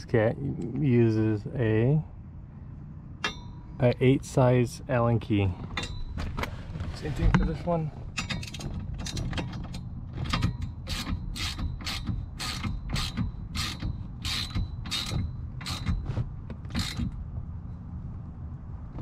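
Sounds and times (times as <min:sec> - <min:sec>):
faint metallic ringing: 0:03.1 - 0:04.1, 0:05.7 - 0:06.4
hand ratchet clicking: 0:10.4 - 0:16.0.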